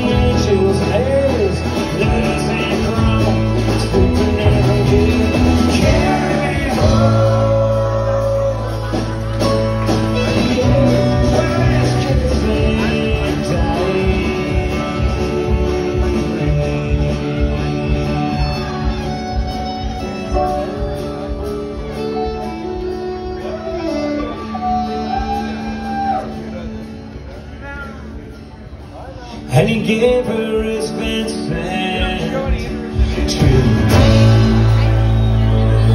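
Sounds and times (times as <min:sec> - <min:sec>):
fiddle melody: 0:00.0 - 0:27.4
country band playing: 0:00.0 - 0:35.9.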